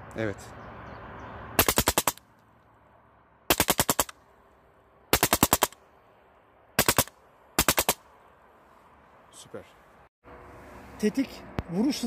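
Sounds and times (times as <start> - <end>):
bb machine gun firing bursts: 1.6 - 2.2, 3.5 - 4.1, 5.1 - 5.8, 6.8 - 8.0.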